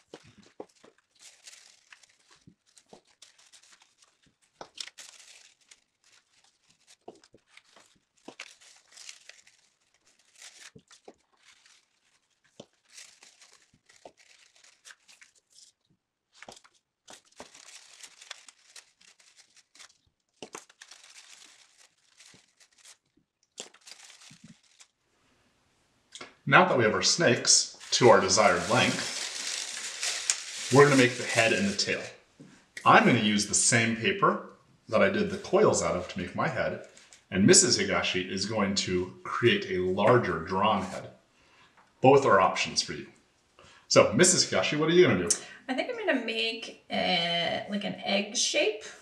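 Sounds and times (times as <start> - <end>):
paper rustling and crinkling: 0.0 - 25.0, 27.7 - 32.2, 35.6 - 37.3.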